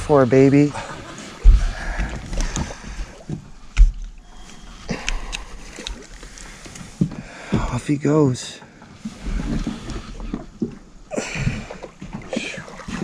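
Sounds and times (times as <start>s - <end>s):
faint water sounds: 0.0s - 13.0s
dull thumps: 1.4s - 4.2s
low rumble: 1.4s - 5.6s.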